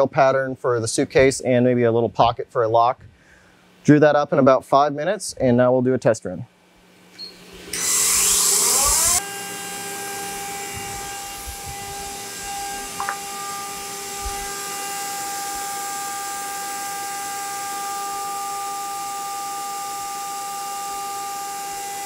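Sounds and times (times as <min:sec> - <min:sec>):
spindle whine: 0:07.0 - 0:22.0.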